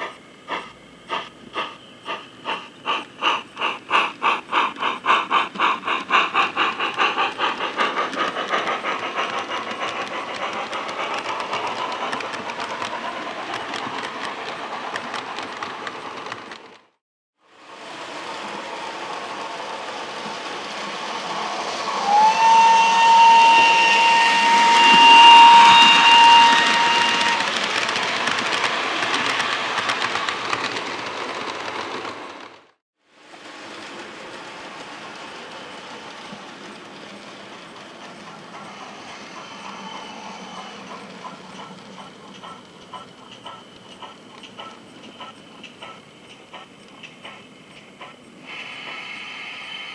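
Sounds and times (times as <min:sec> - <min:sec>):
model steam locomotive hiss: 0:00.0 - 0:16.7, 0:17.4 - 0:32.5, 0:33.1 - 0:49.9
locomotive whistle: 0:21.3 - 0:27.6.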